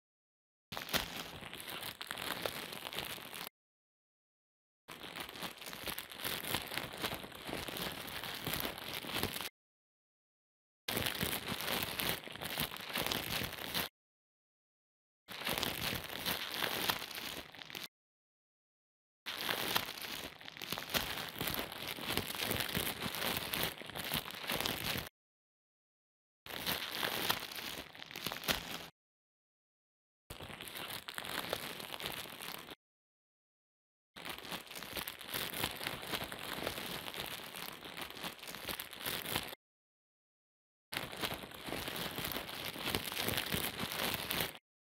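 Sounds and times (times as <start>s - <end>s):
dense crackling noise: 0.8s - 3.5s, 4.9s - 9.5s, 10.9s - 13.9s, 15.3s - 17.9s, 19.3s - 25.1s, 26.5s - 28.9s, 30.3s - 32.8s, 34.2s - 39.6s, 41.0s - 44.6s.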